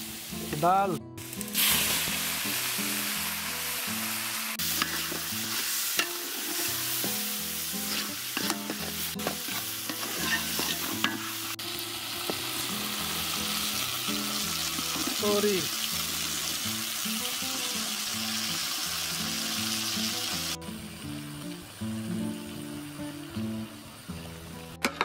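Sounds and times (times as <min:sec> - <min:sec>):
food sizzling in oil: 0:00.0 - 0:24.8
spoon scraping pot: 0:07.9 - 0:11.2.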